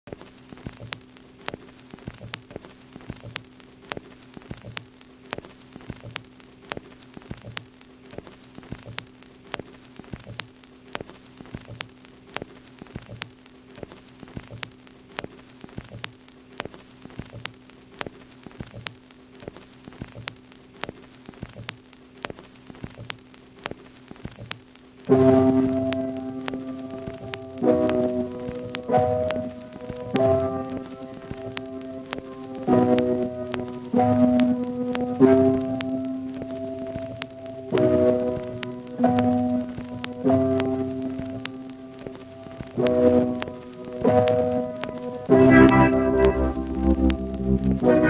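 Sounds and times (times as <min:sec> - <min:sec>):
record crackle and hiss: 0:00.0 - 0:48.0
low hum: 0:45.3 - 0:48.0.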